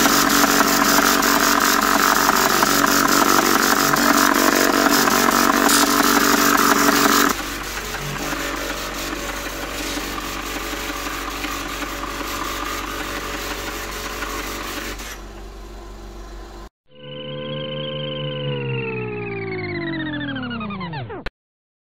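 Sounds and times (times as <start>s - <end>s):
line printer mechanical buzz: 0.0s - 15.4s.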